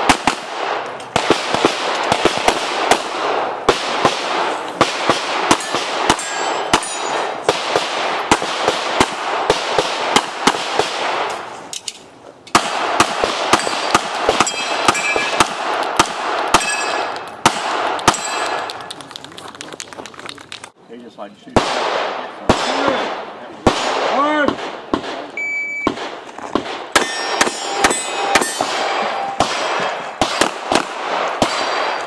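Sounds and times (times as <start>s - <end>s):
pistol shots: 0.0s - 11.5s, 12.5s - 18.8s, 21.6s - 25.3s, 25.9s - 32.0s
metallic ringing of steel targets: 5.5s - 7.4s, 13.5s - 15.4s, 16.6s - 17.2s, 27.0s - 29.5s.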